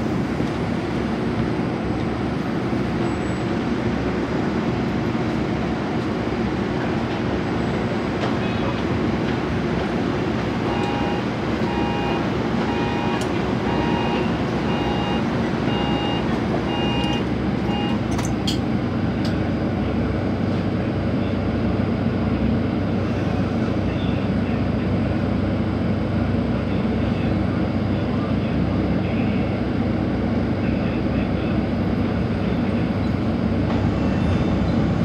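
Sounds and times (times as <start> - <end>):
train mechanical hum: 0.0 - 35.0
two-tone warning beeps: 10.7 - 18.0.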